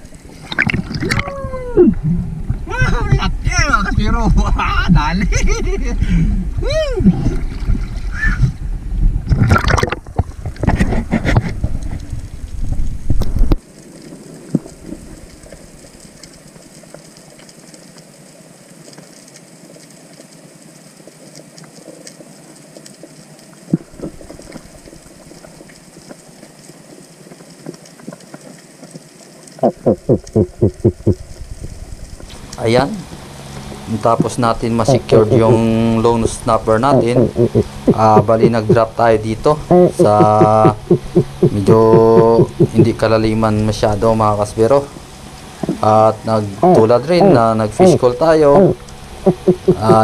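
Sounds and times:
sea water splashing: 0.0s - 8.6s, 9.2s - 50.0s
fish call pulses: 29.6s - 31.2s, 34.6s - 43.1s, 44.9s - 50.0s.

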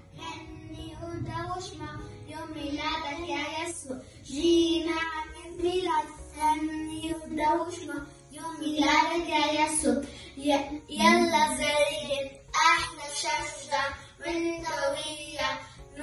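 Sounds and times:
girls singing a hymn: 10.6s - 16.0s.

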